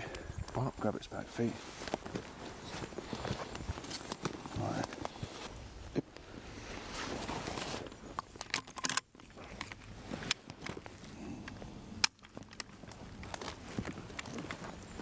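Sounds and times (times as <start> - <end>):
footsteps on forest floor: 0.1 - 8.4, 9.2 - 15.0
clothing rustling: 6.2 - 8.2
rifle action clicks: 8.1 - 10.8.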